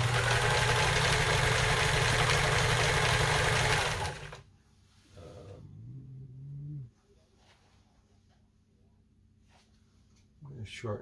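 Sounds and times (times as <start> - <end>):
sewing machine running: 0.0 - 4.4.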